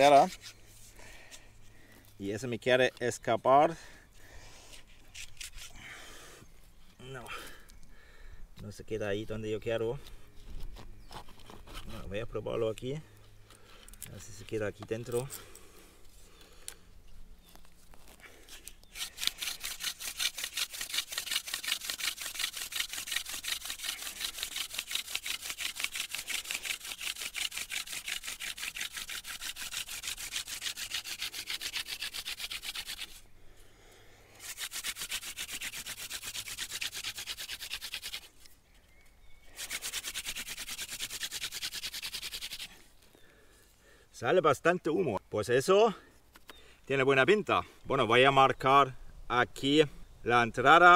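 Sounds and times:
wood on wood rubbing: 0:00.0 - 0:01.0, 0:17.9 - 0:33.2, 0:34.4 - 0:38.5, 0:39.5 - 0:42.8.

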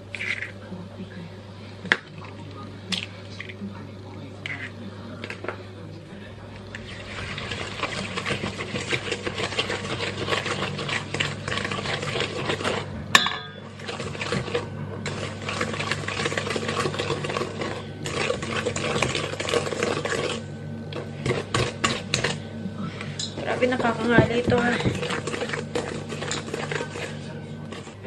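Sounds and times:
whisk scraping metal bowl: 0:04.4 - 0:05.5, 0:06.7 - 0:13.0, 0:13.6 - 0:22.4, 0:23.2 - 0:28.0.

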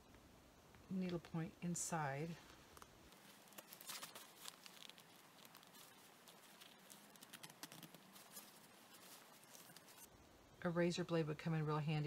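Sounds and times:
seam ripper snapping stitches: 0:03.4 - 0:08.8.

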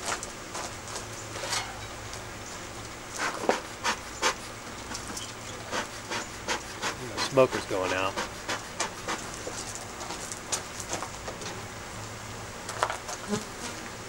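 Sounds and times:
bellows puffs of air: 0:03.2 - 0:04.6, 0:05.6 - 0:09.3.

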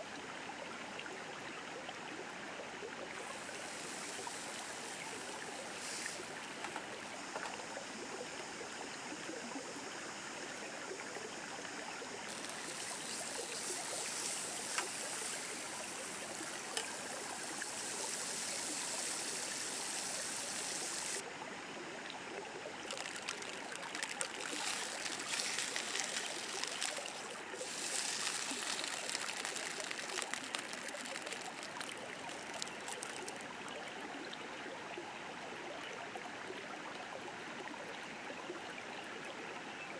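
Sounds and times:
river flowing: 0:03.0 - 0:34.4
frying pan sizzling: 0:03.2 - 0:06.8, 0:12.3 - 0:21.2, 0:22.9 - 0:33.4.

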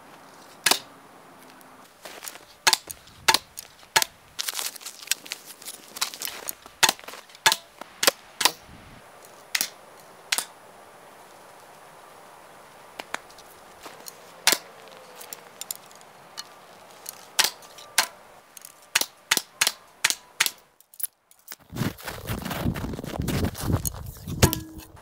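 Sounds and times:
arrows striking target: 0:00.6 - 0:00.9, 0:06.8 - 0:08.6, 0:09.5 - 0:10.5, 0:14.4 - 0:14.7, 0:17.4 - 0:18.2, 0:24.3 - 0:25.0.

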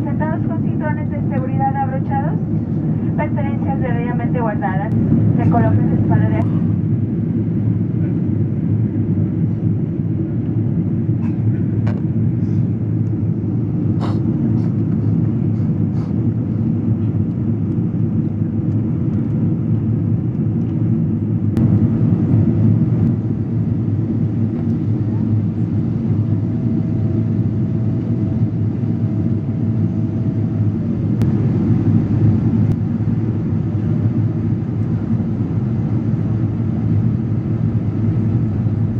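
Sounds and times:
jet engine cabin rush: 0:00.0 - 0:38.9.

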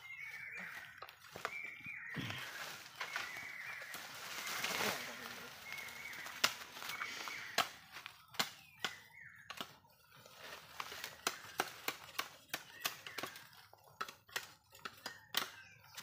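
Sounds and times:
machete hacking bamboo: 0:07.4 - 0:09.7, 0:10.8 - 0:16.0.

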